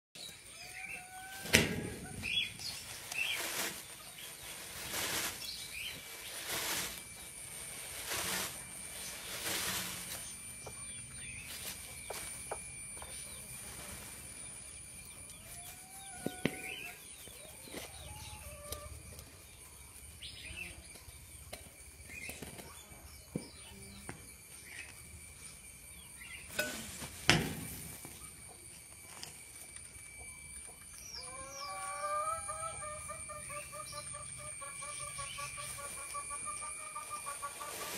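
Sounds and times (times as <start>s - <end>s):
rustling bursts: 1.4s - 10.5s
thin high-pitched tone: 23.6s - 32.1s.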